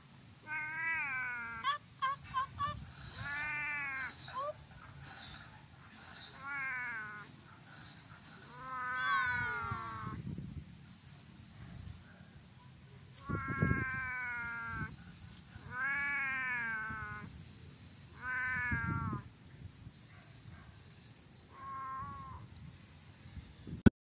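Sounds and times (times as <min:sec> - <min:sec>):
cat meowing: 0:00.4 - 0:01.8, 0:03.2 - 0:04.2, 0:06.4 - 0:07.3, 0:08.5 - 0:10.2, 0:13.2 - 0:14.9, 0:15.6 - 0:17.3, 0:18.1 - 0:19.2, 0:21.5 - 0:22.5.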